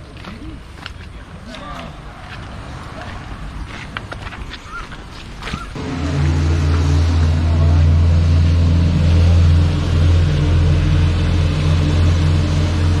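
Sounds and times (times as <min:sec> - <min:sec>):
vehicle engine droning: 0:05.7 - 0:13.0.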